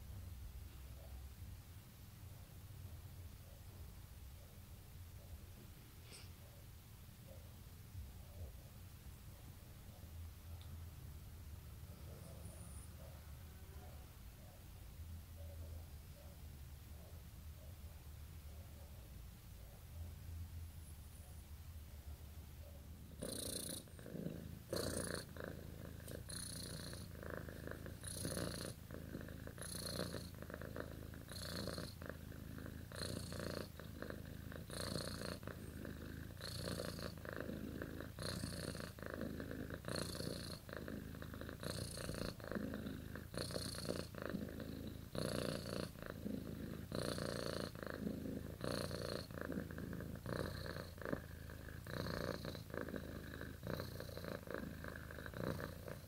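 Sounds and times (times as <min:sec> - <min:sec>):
cat purring: 0:20.8 - 0:56.0.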